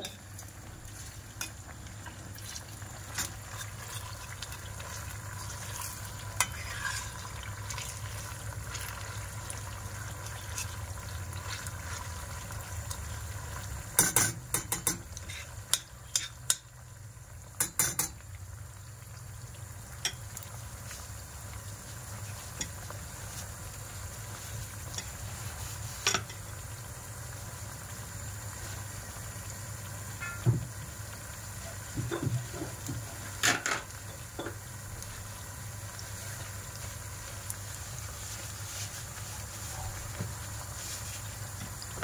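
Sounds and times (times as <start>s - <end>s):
onions sizzling in a pan: 0.0s - 42.0s
metal spoon clinking on pan: 17.6s - 18.2s, 30.2s - 30.4s.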